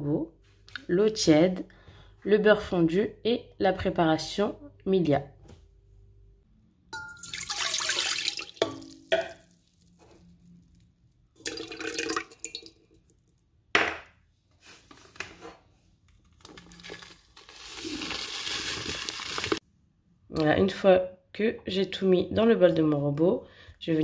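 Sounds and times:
liquid pouring into metal bowl: 7.0s - 13.4s.

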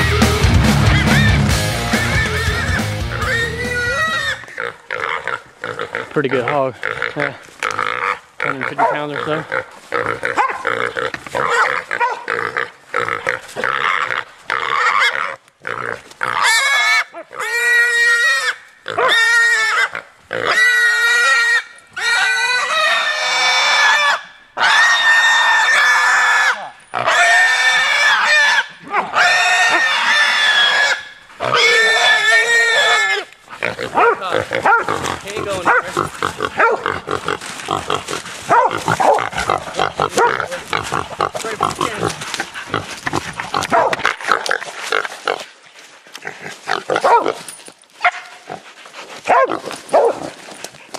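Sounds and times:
hog squealing: 0.9s - 6.1s, 7.8s - 44.5s.

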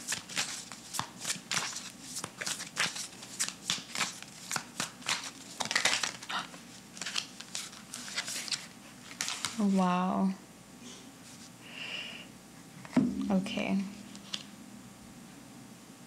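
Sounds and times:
cards being shuffled: 0.0s - 9.8s, 14.1s - 14.5s.

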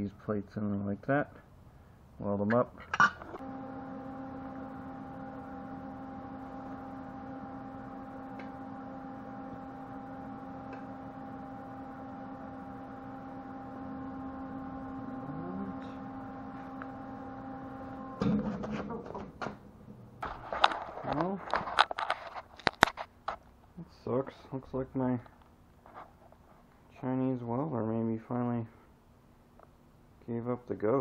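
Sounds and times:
welder electrical hum: 2.0s - 26.0s.

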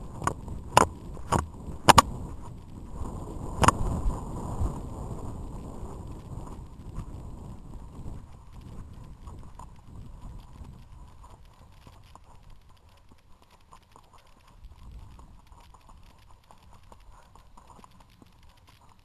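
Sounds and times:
low rumble: 0.0s - 13.2s
horse hoofbeats on dirt trail: 0.0s - 19.0s.

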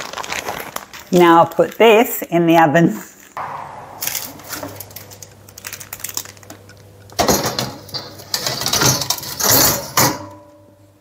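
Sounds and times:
low steady hum: 3.4s - 7.2s
baking tray clattering: 7.2s - 10.4s.

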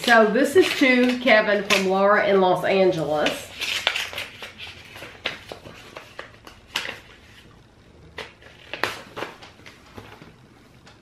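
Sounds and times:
paper crackles: 3.0s - 7.6s, 8.2s - 11.0s
paper rustling and crinkling: 3.1s - 7.5s, 8.2s - 11.0s.

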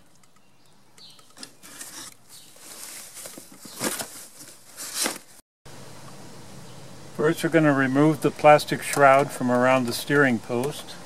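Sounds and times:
cardboard and packing material rustling: 1.4s - 5.4s.

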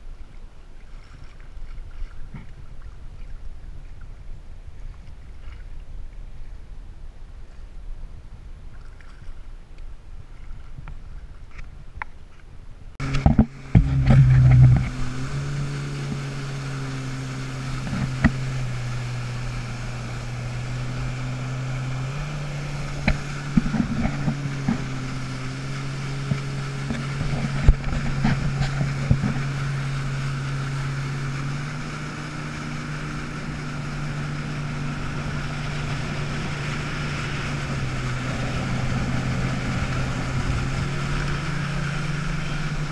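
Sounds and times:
faint water sound from wading: 0.0s - 42.9s
jet ski engine drone: 12.3s - 42.9s
hull slaps: 13.0s - 42.9s
wind buffeting: 13.0s - 42.9s.

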